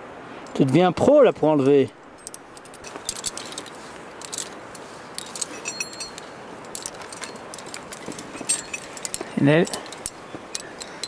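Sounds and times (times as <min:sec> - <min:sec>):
steady hiss: 0:00.0 - 0:11.0
carabiners clinking and jingling: 0:01.6 - 0:11.0
ringing clink of metal: 0:05.2 - 0:11.0.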